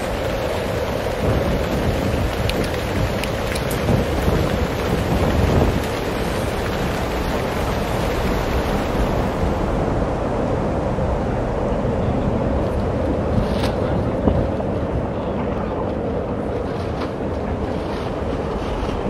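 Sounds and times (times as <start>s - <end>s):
strong wind buffeting microphone: 0.0s - 19.0s.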